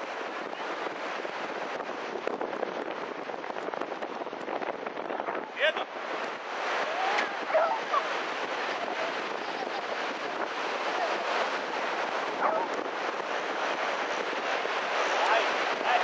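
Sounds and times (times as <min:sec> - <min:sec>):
steady rushing outdoor noise: 0:00.0 - 0:16.0
faint voices: 0:06.8 - 0:12.9, 0:15.0 - 0:16.0.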